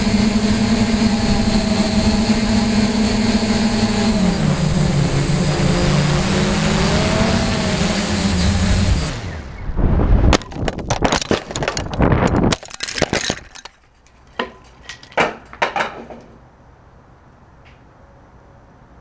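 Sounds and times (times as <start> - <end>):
cracking clattering knocks: 10.3 - 16.4.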